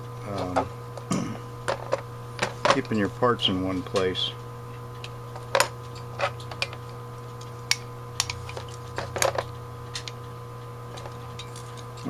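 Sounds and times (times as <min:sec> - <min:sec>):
steady low hum: 0:00.0 - 0:12.0
metal parts clicking and tapping: 0:07.7 - 0:10.2.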